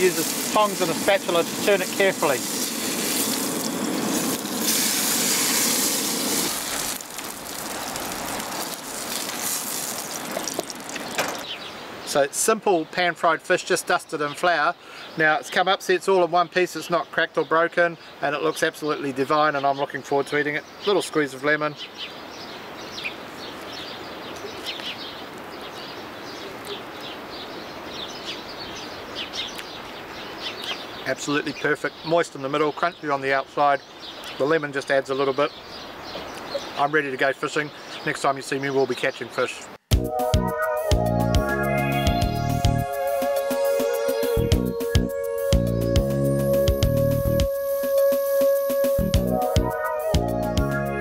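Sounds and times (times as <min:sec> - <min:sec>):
fish sizzling in a frying pan: 0:00.0 - 0:11.2
small birds chirping: 0:00.0 - 0:12.9, 0:13.9 - 0:39.8
steady background hiss: 0:00.0 - 0:39.8.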